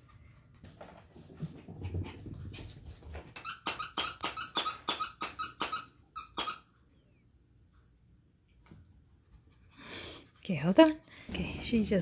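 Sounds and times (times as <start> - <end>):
dog toy squeaker squeaking: 3.4 - 6.7.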